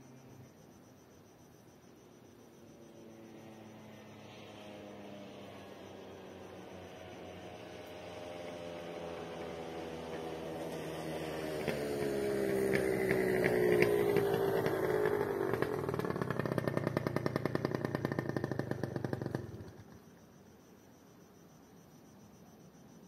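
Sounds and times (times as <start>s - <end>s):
motor scooter passing: 2.7s - 20.0s.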